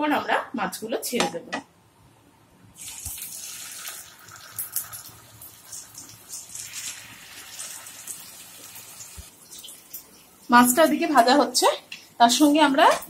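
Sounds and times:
fish sizzling in hot oil: 2.8 - 10.9.

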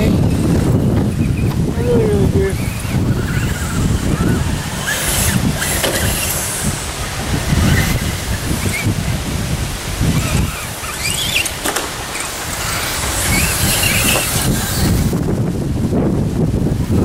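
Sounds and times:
wind rumbling on microphone: 0.0 - 17.0
toy truck motor whining: 0.6 - 9.2, 10.0 - 15.2.

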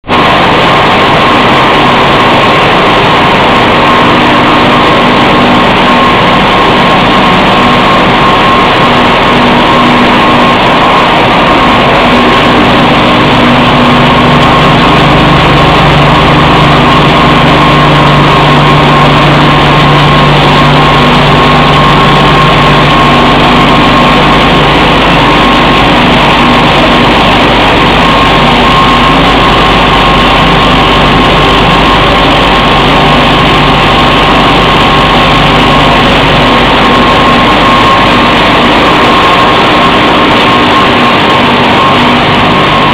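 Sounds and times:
low hum: 0.0 - 42.9
machinery noise with whine: 0.0 - 42.9.

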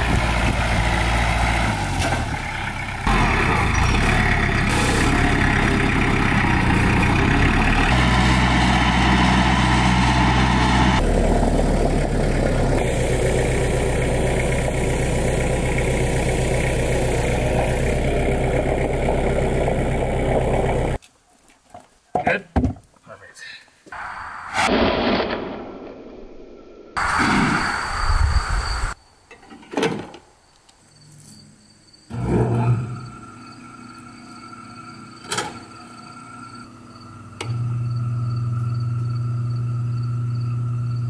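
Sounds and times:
tractor engine running: 0.0 - 21.0, 32.1 - 41.0.

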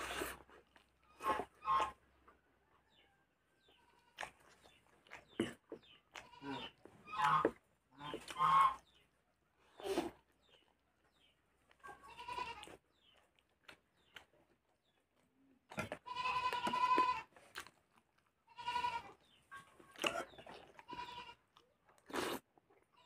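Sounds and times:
goat bleating: 6.2 - 7.4, 11.9 - 12.7, 15.8 - 17.3, 18.5 - 19.2, 20.8 - 21.4.

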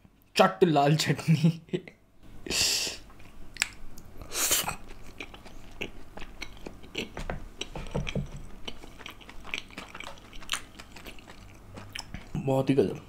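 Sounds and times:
person chewing food: 3.1 - 12.4.

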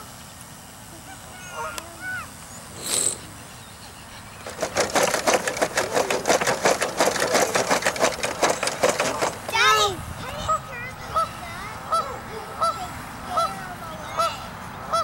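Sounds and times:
geese honking: 1.0 - 2.3, 10.4 - 15.0
loud rapid rhythmic beating: 4.4 - 9.6.

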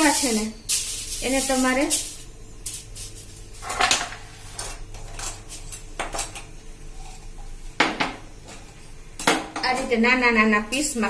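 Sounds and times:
aluminium foil crinkling: 0.0 - 3.7.

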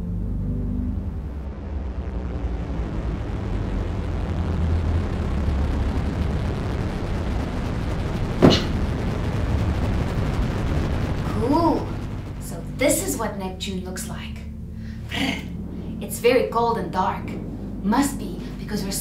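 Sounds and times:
low spaceship rumble: 0.0 - 19.0
sharp crack: 8.2 - 9.6.

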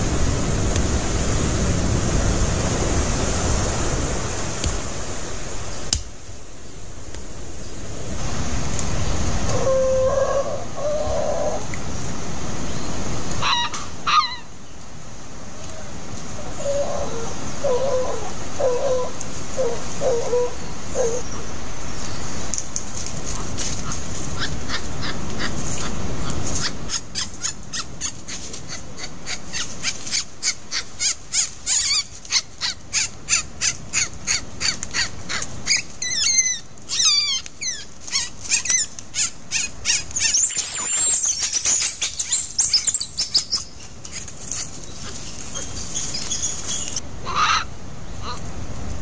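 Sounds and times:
high rising and falling call: 35.7 - 43.8
birds chirping: 35.7 - 47.5.

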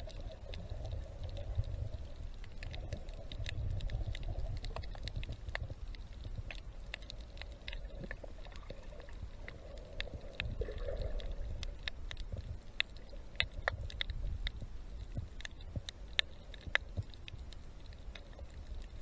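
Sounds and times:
muffled underwater rumble: 0.0 - 19.0
water gurgle: 0.0 - 19.0.

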